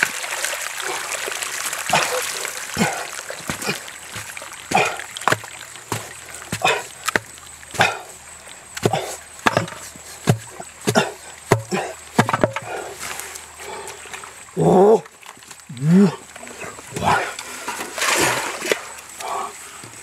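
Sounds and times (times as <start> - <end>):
machete chopping wet mud: 2.8 - 8.1, 8.8 - 12.8.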